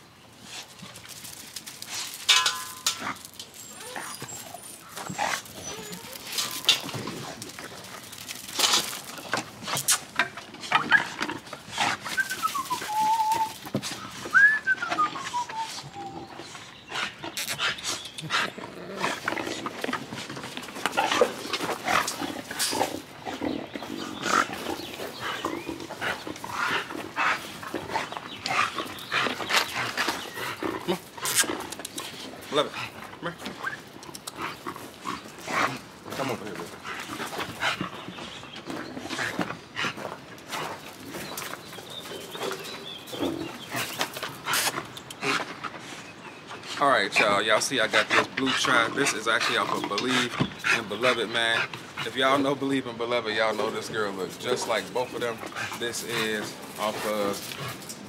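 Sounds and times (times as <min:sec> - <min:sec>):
paws on wooden deck: 0:03.1 - 0:47.3, 0:48.0 - 0:52.4, 0:54.0 - 0:58.0
dog whining: 0:03.6 - 0:07.0, 0:12.1 - 0:13.7, 0:14.3 - 0:16.5.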